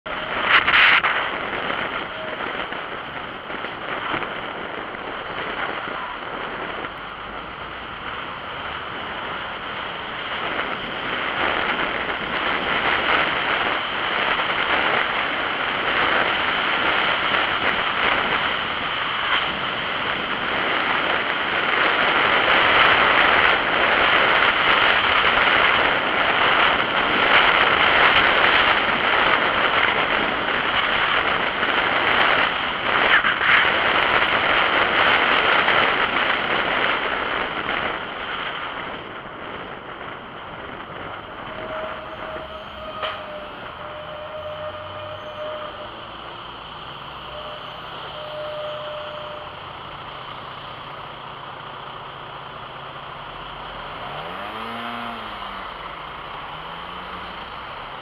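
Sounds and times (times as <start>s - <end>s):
road noise: 0.0s - 58.0s
wind rushing over microphone: 0.0s - 58.0s.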